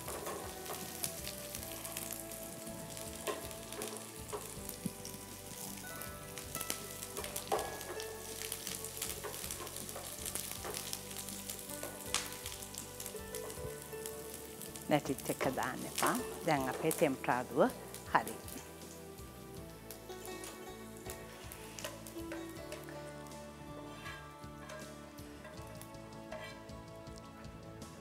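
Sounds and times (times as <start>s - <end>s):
food sizzling in hot oil: 0.0s - 26.7s
wooden spoon scraping pan: 23.7s - 26.8s.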